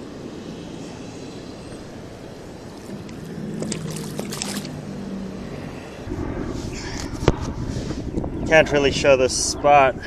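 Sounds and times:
low hum: 0:00.0 - 0:08.4
river water rushing: 0:01.5 - 0:05.5.

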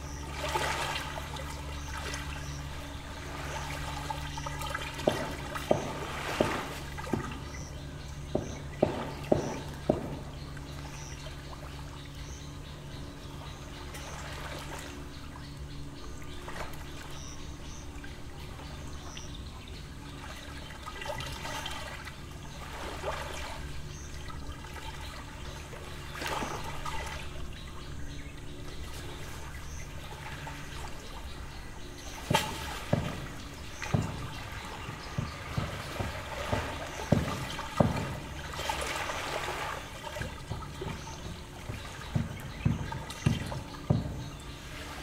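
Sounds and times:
lake waves lapping on shore: 0:00.0 - 0:45.0
low steady hum: 0:00.0 - 0:45.0.

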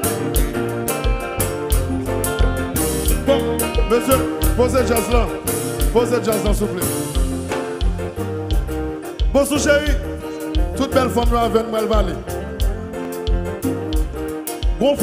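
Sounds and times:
electric guitar: 0:00.0 - 0:11.5, 0:12.1 - 0:14.9
bass: 0:00.0 - 0:15.0
drums with steady beat: 0:00.0 - 0:15.0
keyboard: 0:00.0 - 0:15.0
man singing: 0:03.1 - 0:07.1, 0:09.3 - 0:12.4, 0:14.8 - 0:15.0.

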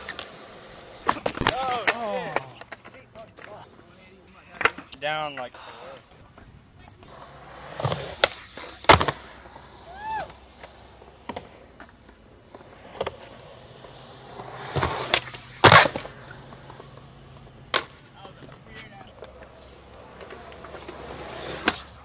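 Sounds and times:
skateboard slamming: 0:00.0 - 0:02.8, 0:07.6 - 0:09.4, 0:12.9 - 0:18.6
skateboard wheels rolling on concrete: 0:00.0 - 0:22.0
skateboard pop and landing clack: 0:01.0 - 0:02.9, 0:07.8 - 0:09.2, 0:14.6 - 0:17.0, 0:17.6 - 0:18.0.

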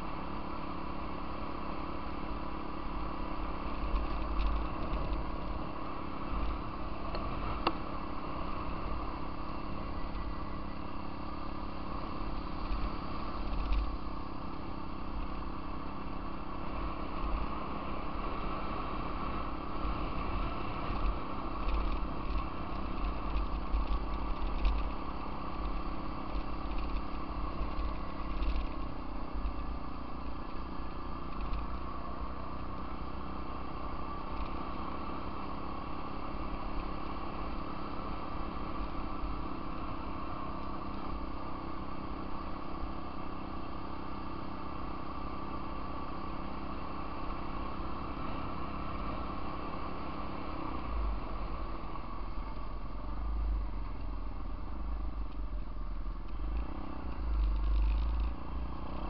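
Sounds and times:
off-road vehicle engine: 0:00.0 - 0:59.0
small clicks and knocks: 0:03.7 - 0:05.3, 0:13.5 - 0:13.9, 0:20.9 - 0:25.0, 0:25.6 - 0:29.6, 0:31.3 - 0:31.7, 0:56.2 - 0:58.4.

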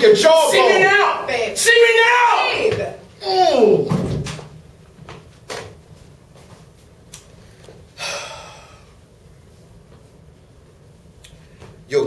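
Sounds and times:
footfalls on a hard floor: 0:03.8 - 0:06.8.

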